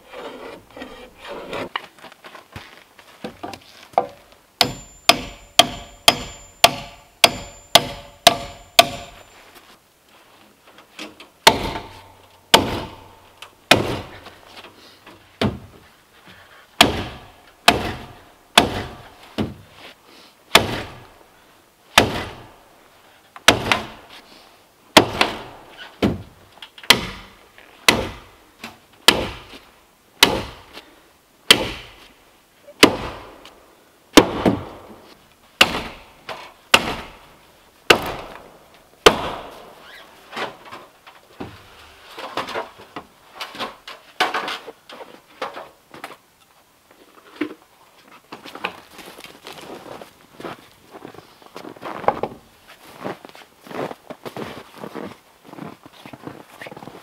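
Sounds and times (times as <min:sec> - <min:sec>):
hammer striking log wall: 0:04.0 - 0:09.4, 0:11.4 - 0:14.4, 0:16.8 - 0:19.6, 0:20.5 - 0:21.0, 0:22.0 - 0:22.4, 0:23.5 - 0:24.0, 0:25.0 - 0:26.2, 0:26.9 - 0:28.3, 0:29.0 - 0:29.5, 0:30.2 - 0:30.7, 0:31.5 - 0:32.0, 0:32.8 - 0:33.4, 0:34.2 - 0:34.9, 0:35.6 - 0:37.2, 0:37.9 - 0:39.7.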